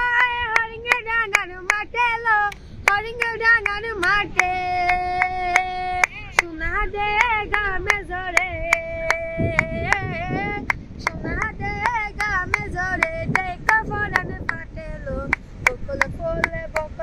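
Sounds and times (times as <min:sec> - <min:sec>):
girl singing unaccompanied: 0:00.0 - 0:17.0
hands clapping a steady beat: 0:02.5 - 0:06.5, 0:07.2 - 0:14.6.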